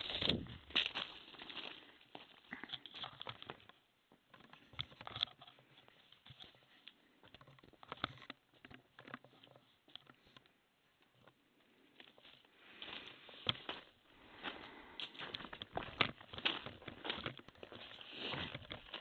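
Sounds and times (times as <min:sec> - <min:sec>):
faint irregular clicks and taps: 0:02.5 - 0:11.4.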